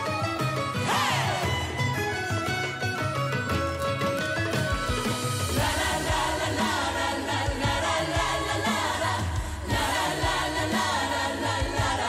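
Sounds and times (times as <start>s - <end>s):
instrumental backing with bass: 0.0s - 12.0s
mixed choir singing: 0.8s - 1.8s, 5.6s - 12.0s.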